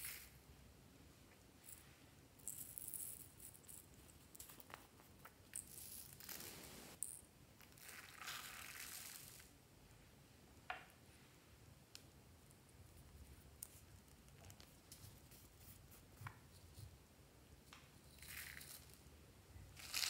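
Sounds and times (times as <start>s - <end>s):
glass beads rattling: 1.6s - 4.6s, 5.5s - 9.4s, 18.1s - 19.1s, 19.8s - 20.0s.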